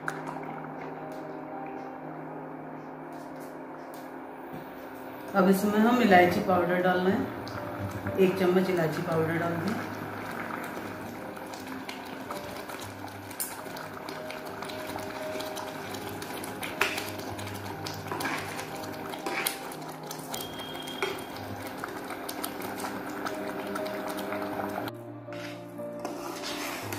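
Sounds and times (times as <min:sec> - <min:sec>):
spatula scraping a metal pan: 0:18.1 - 0:19.6, 0:25.3 - 0:26.9.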